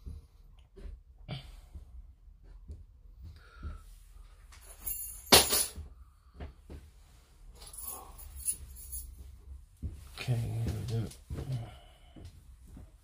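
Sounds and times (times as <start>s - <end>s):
jingling rattle: 4.6s - 5.8s, 7.6s - 9.2s.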